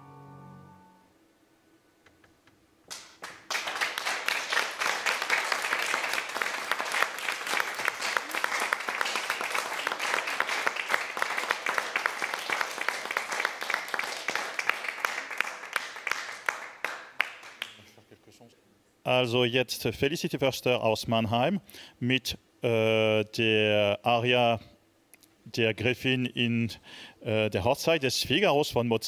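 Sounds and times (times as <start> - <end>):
audience applause: 2.9 - 18.0.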